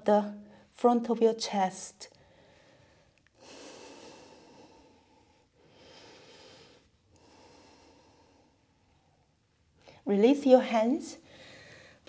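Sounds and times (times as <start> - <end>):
person breathing: 2.1 - 9.1, 11.2 - 12.0.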